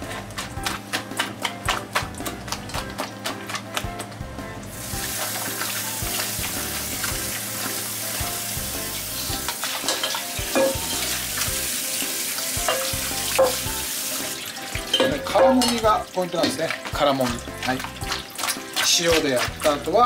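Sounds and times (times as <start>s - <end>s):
hands rinsing squid: 0.0s - 20.0s
tap water running into bowl: 0.1s - 20.0s
knocks against metal bowl: 10.0s - 10.9s, 14.9s - 15.8s.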